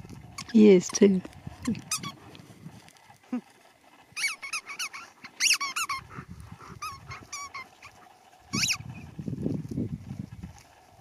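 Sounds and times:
dog whining: 0:04.1 - 0:09.0.

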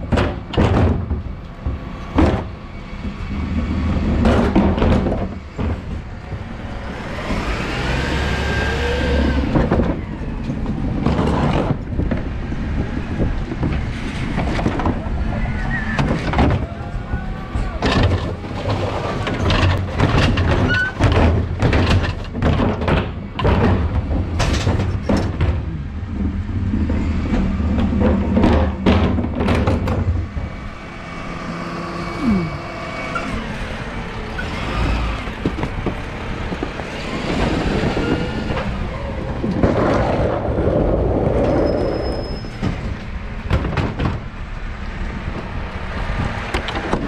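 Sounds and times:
truck engine running: 0:16.5 - 0:39.6.

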